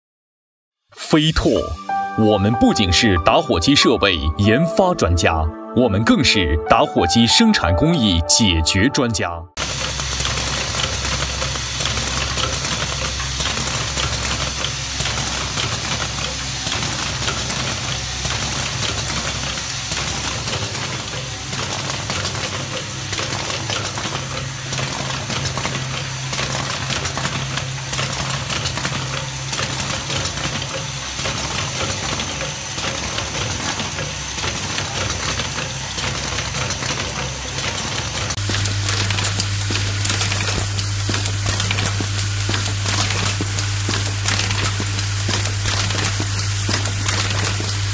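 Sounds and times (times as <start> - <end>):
machine low hum: 9.6 - 47.8
machine rapid clatter: 9.6 - 47.9.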